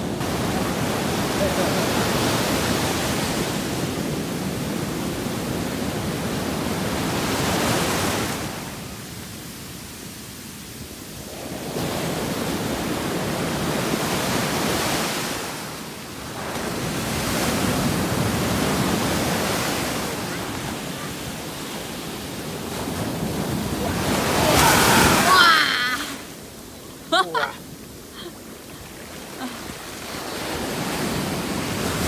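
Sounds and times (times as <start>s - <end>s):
waves breaking on sand: 0.0s - 32.0s
wave splashing against people: 22.7s - 26.2s.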